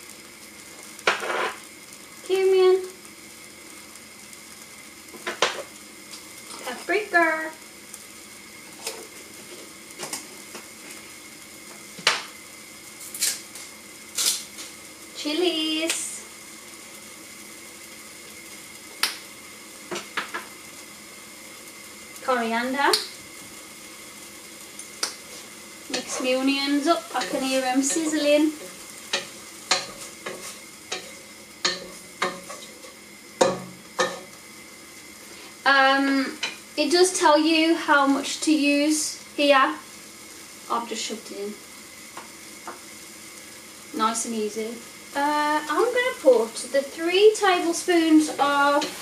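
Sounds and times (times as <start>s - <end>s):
onions sizzling in oil: 0.0s - 49.0s
wooden spoon scraping a pan: 1.1s - 1.6s, 25.2s - 33.0s, 48.2s - 49.0s.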